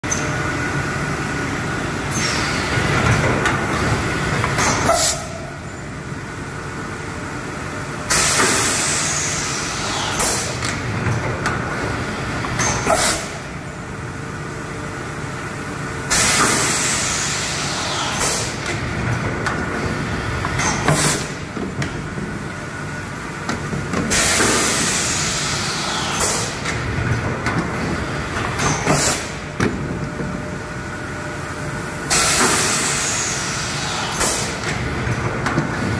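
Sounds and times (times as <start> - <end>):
compressed air hiss and blast: 8.1 - 10.6, 16.1 - 18.6, 24.1 - 26.6, 32.1 - 34.6.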